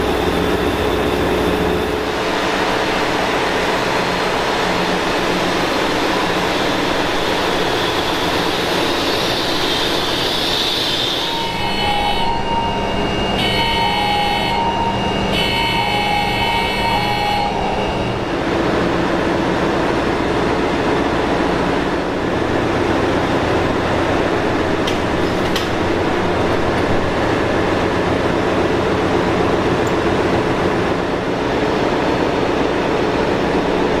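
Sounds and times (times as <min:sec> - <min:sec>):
pulsing alarm tone: 0:10.9 - 0:18.3.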